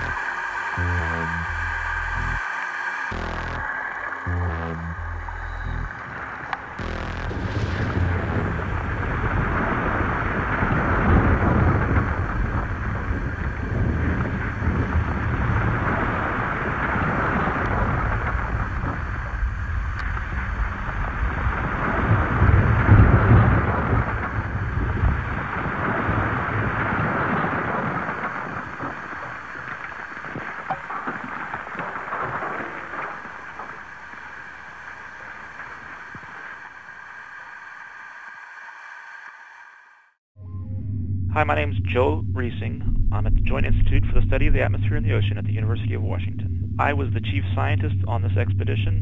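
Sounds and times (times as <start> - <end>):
underwater lava rumbling and hissing: 7.4 - 38.6, 41.3 - 48.7.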